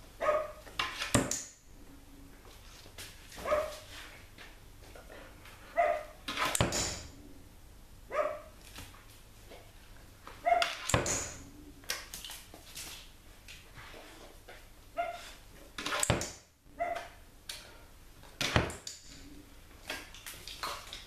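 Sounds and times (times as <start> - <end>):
puppy barking: 0.2 - 0.6, 3.4 - 3.8, 5.8 - 6.2, 8.1 - 8.5, 10.4 - 10.8, 15.0 - 15.3, 16.7 - 17.2.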